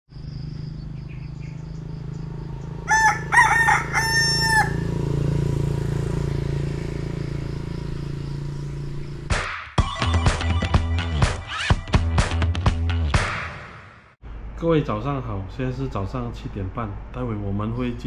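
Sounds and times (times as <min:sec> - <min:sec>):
rooster crowing: 0:02.8 - 0:05.3.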